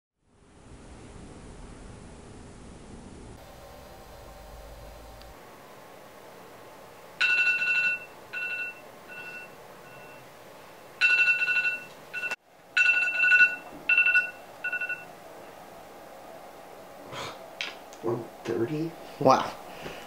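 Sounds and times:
phone alarm beeps: 0:07.2 - 0:10.3, 0:11.0 - 0:15.1.

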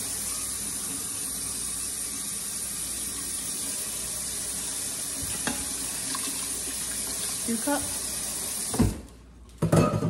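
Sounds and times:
tap water running into metal cup: 0:03.1 - 0:08.9.

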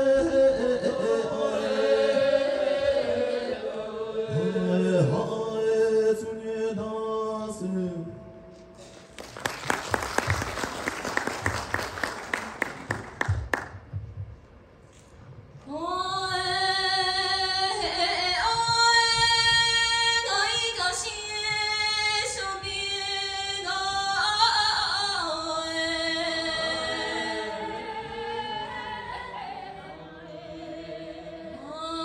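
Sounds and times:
audience applause: 0:08.8 - 0:13.8
opera singing in long held notes: 0:15.7 - 0:32.0.

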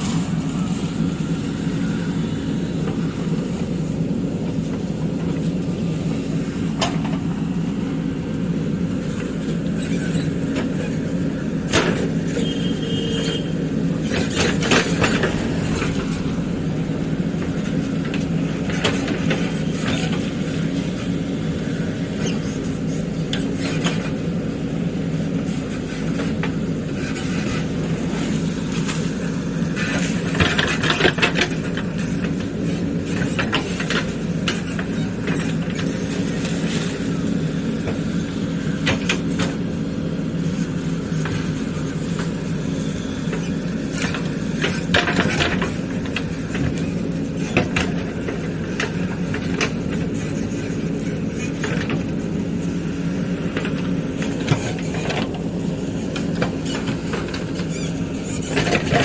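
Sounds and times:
diesel engine under load: 0:00.0 - 0:59.0
short squeal: 0:12.3 - 0:16.6.

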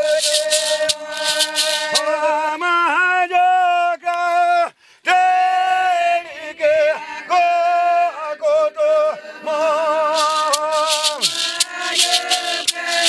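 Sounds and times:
rattle shaking: 0:00.0 - 0:02.2, 0:10.0 - 0:13.0
person singing a chant: 0:00.0 - 0:02.6, 0:05.2 - 0:13.0.

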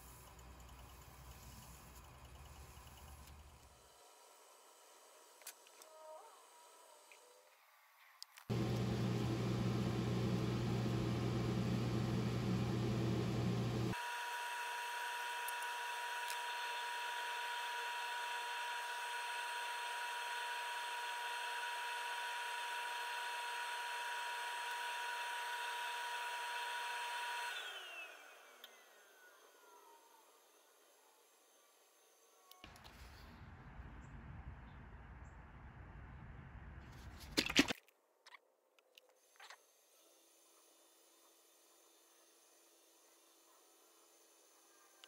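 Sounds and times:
wood lathe humming and whining: 0:08.5 - 0:32.4.

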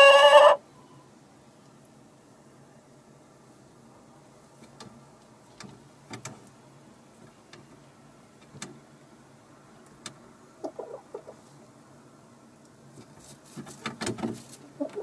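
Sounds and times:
hens clucking softly: 0:00.0 - 0:00.6, 0:10.5 - 0:11.6, 0:14.6 - 0:15.0
light taps and scratches: 0:12.9 - 0:15.0.

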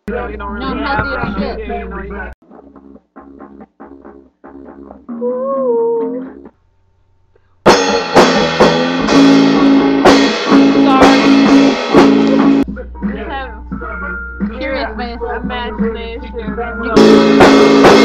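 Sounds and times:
song with guitar and drums: 0:02.4 - 0:05.3, 0:07.7 - 0:18.0.

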